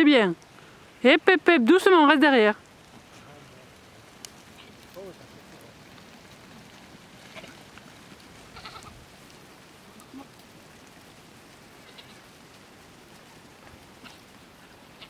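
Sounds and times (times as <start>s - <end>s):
steady hiss: 0.0s - 15.0s
goats bleating: 4.4s - 5.6s, 7.2s - 9.1s, 9.9s - 10.4s, 11.7s - 12.4s, 14.0s - 15.0s.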